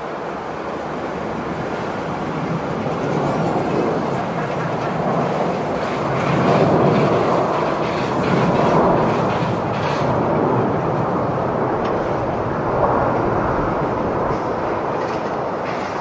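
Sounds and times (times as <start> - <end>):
jet engines rumbling: 0.0 - 16.0.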